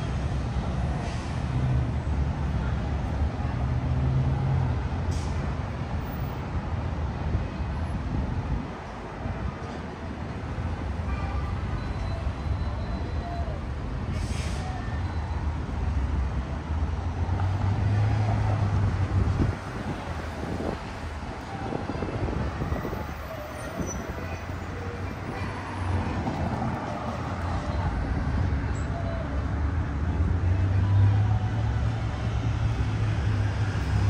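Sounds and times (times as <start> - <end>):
passing vehicles rumbling: 0.0 - 34.0.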